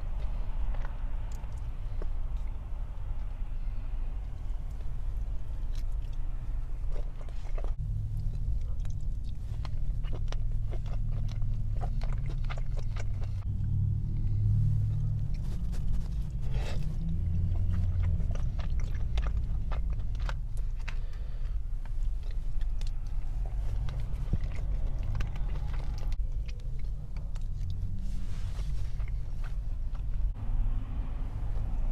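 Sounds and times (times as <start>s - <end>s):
low steady rumble: 0.0s - 31.9s
wet chewing smacks: 5.6s - 13.5s, 15.3s - 28.0s.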